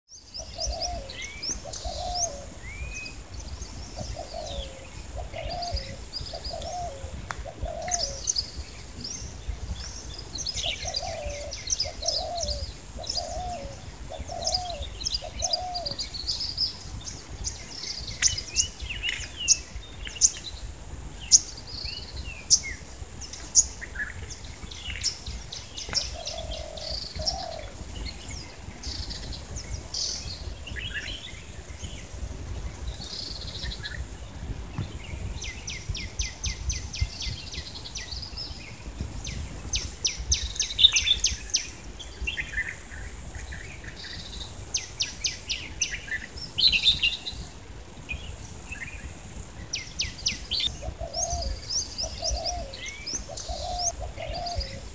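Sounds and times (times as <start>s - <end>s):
birds chirping and singing: 0.1s - 47.5s, 48.1s - 54.9s
dove cooing: 0.4s - 2.6s, 4.0s - 8.3s, 10.7s - 16.0s, 26.0s - 27.8s, 50.6s - 54.9s.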